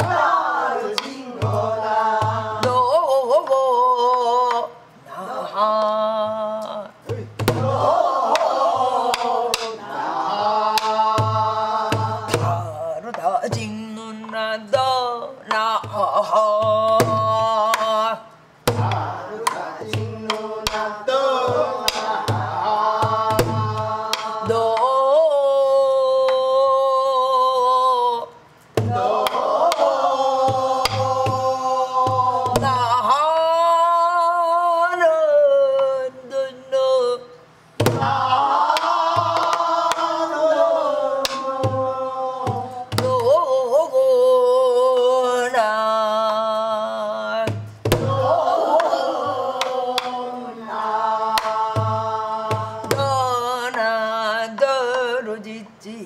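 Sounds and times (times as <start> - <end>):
woman singing with vibrato: 0.0 - 56.0
barrel drum thumps and strokes: 7.2 - 9.8, 18.6 - 24.6, 37.8 - 40.0, 47.5 - 50.2.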